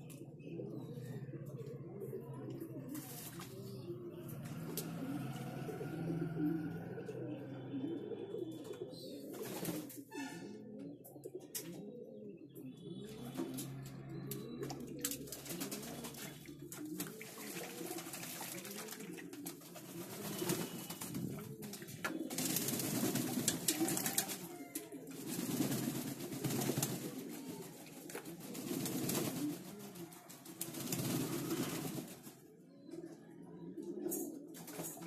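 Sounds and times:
pigeons cooing: 0.0 - 35.0
wet wings flapping: 25.2 - 27.1.

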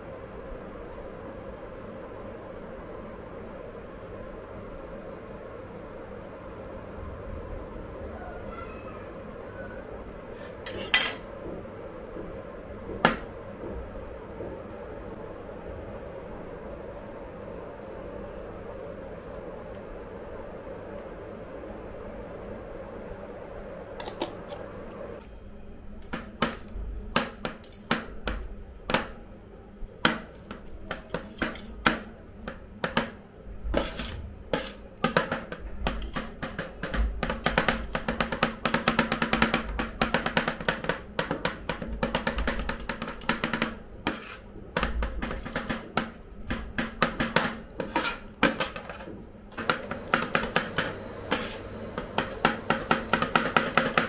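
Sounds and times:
steady hum: 0.0 - 54.0
metal spatulas clacking on plate: 10.4 - 11.2.

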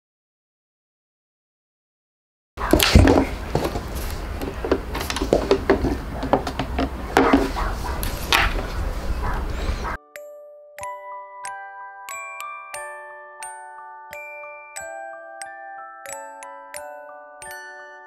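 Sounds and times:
wooden box knocks and scrapes: 2.7 - 8.7
music box tinkling tune: 10.1 - 18.0.

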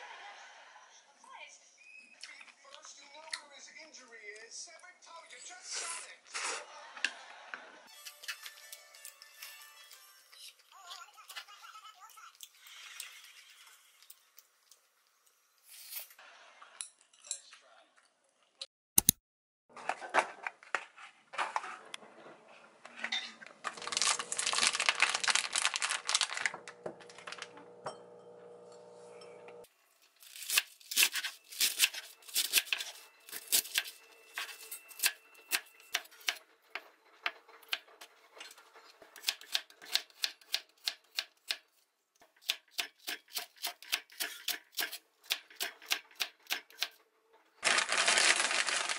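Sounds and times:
plastic bag rustling: 23.6 - 27.6, 47.6 - 48.9.

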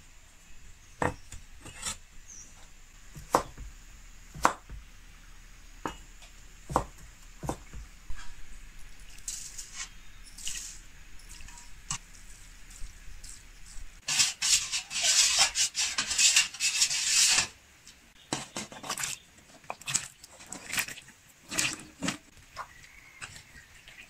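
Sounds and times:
metal ladle scraping in pot: 9.0 - 12.1, 14.0 - 17.6.

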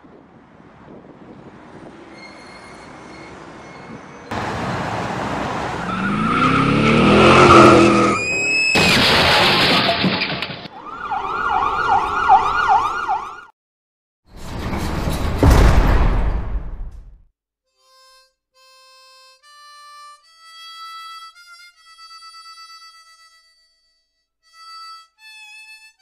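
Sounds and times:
high screech: 2.1 - 4.3, 5.8 - 8.9
car engine revving: 4.3 - 8.2
police siren wailing: 5.5 - 8.7, 10.7 - 13.5.

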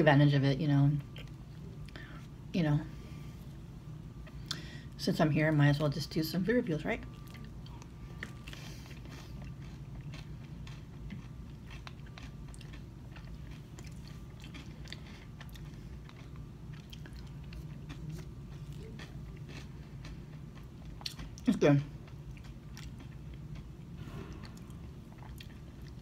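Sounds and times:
steady low hum: 0.0 - 26.0
chewing with mouth clicks and crunches: 7.0 - 26.0.

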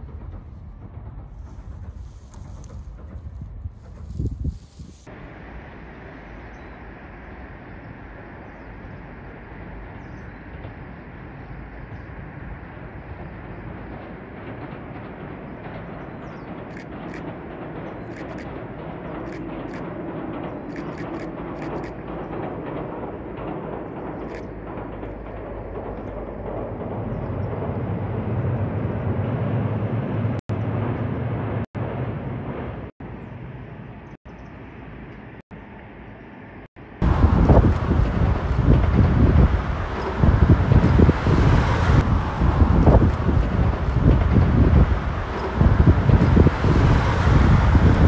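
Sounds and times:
distant train rumbling over bridge: 0.0 - 48.0
low unsteady rumble: 36.5 - 48.0.

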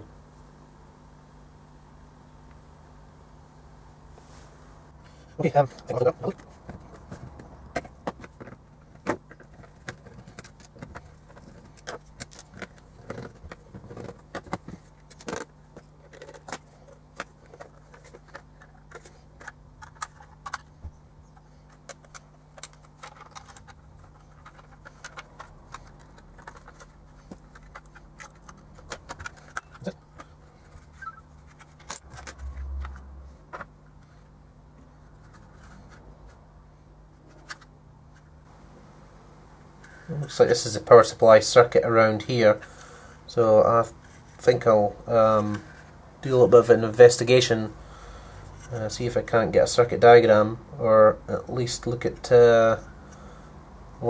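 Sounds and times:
plastic parts clicking and rattling: 5.8 - 20.8, 21.4 - 33.7.

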